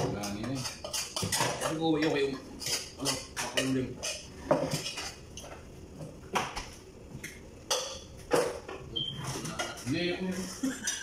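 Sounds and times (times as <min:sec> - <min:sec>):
metal pots and plates clinking: 0:00.0 - 0:05.2, 0:07.7 - 0:11.0.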